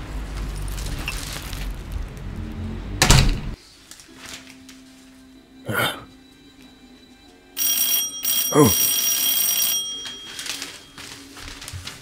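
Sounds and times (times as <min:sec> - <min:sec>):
electric doorbell ringing: 0:07.6 - 0:11.2.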